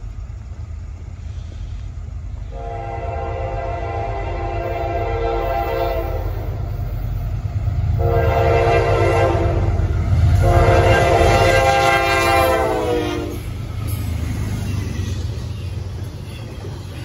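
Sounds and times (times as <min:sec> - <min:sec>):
passing train rumble: 0:00.0 - 0:17.0
locomotive air horn blasts: 0:02.5 - 0:06.6, 0:08.0 - 0:13.5.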